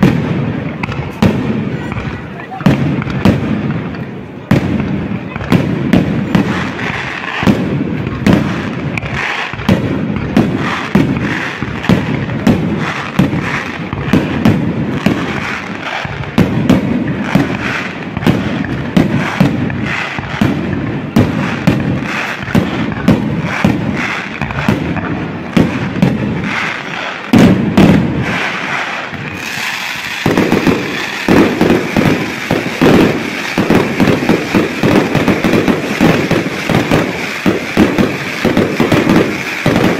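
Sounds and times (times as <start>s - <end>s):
fireworks crackling hiss: 0.0s - 39.9s
firework shells bursting: 4.8s - 39.9s.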